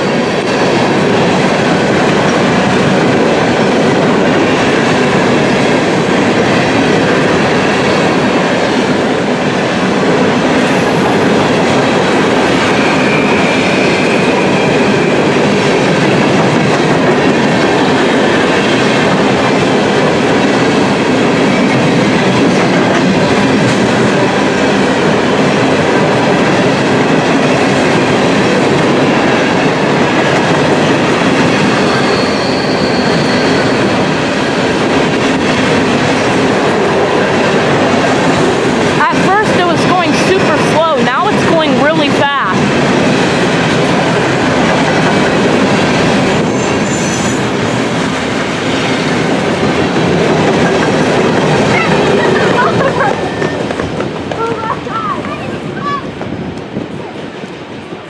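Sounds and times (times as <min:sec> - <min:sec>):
train wheels rumbling on rail: 0:00.0 - 0:58.0
high wheel squeals: 0:12.1 - 0:15.1, 0:31.5 - 0:34.1, 0:46.1 - 0:50.2.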